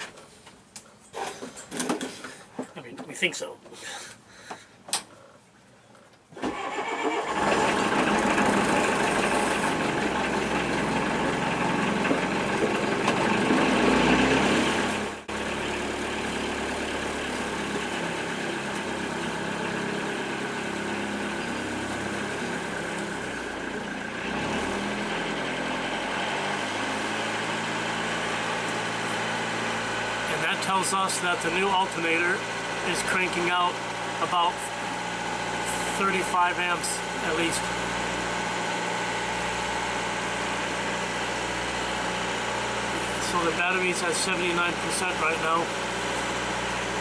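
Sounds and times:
boat engine starting and idling: 6.3 - 47.0.

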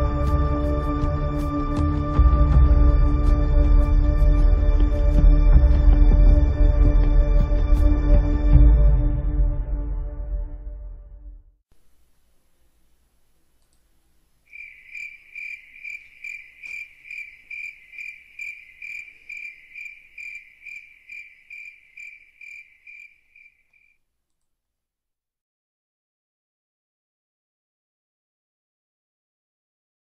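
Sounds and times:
cricket chirping: 14.4 - 24.0.

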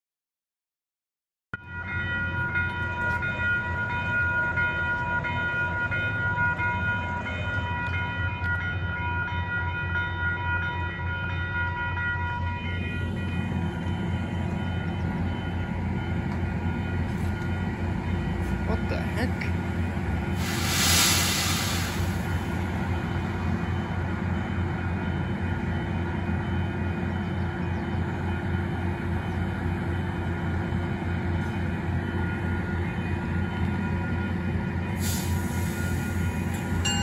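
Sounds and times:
train rumbling: 1.6 - 37.0.

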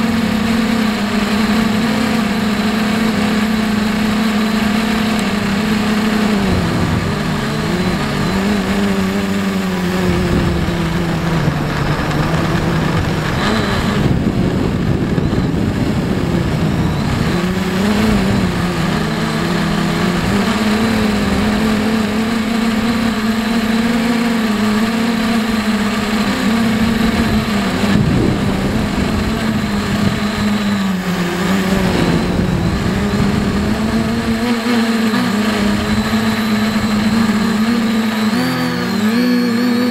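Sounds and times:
drone motors and propellers buzzing: 0.0 - 39.9
rough low rumble: 6.5 - 16.8, 31.7 - 34.3.

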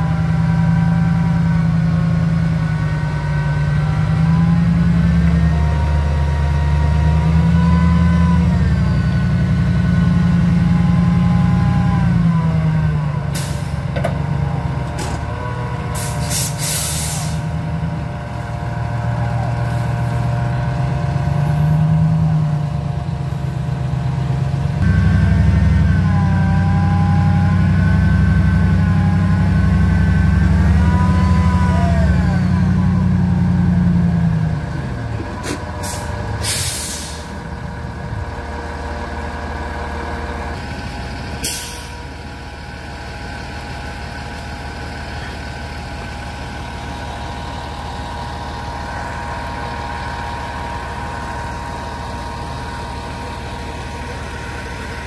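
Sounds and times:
truck diesel engine: 0.0 - 55.0
air brake hisses: 16.0 - 17.5, 35.4 - 37.4, 41.4 - 42.1.

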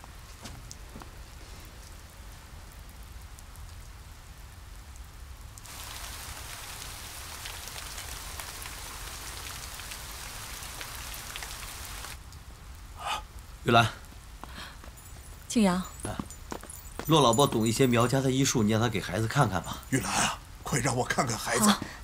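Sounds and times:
rain falling and dripping: 0.0 - 22.0.

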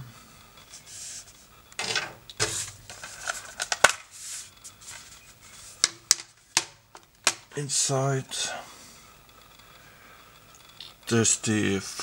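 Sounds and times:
cardboard sleeve rubbing and sliding: 4.1 - 5.8
sharp clicks and knocks: 5.8 - 7.6.

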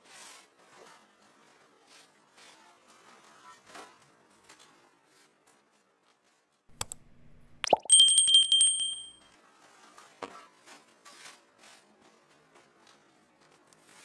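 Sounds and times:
click: 6.7 - 7.7
short plop: 6.7 - 8.7
bright bell ding: 7.6 - 9.2.

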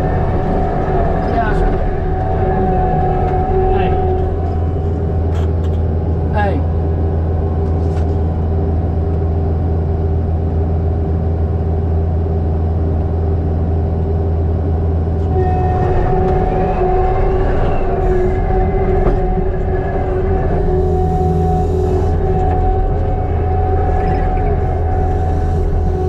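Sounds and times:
diesel engine running: 0.0 - 26.0
hydraulic whine: 15.1 - 26.0.

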